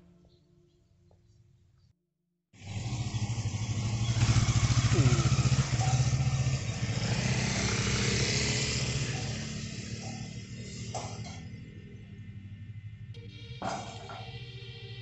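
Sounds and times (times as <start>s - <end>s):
motorcycle engine riding away: 2.6s - 14.4s.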